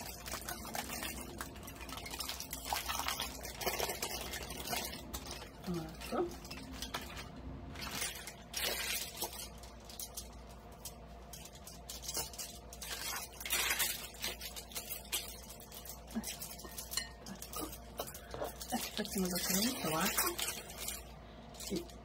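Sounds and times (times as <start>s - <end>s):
aluminium foil crinkling: 0.0s - 22.0s.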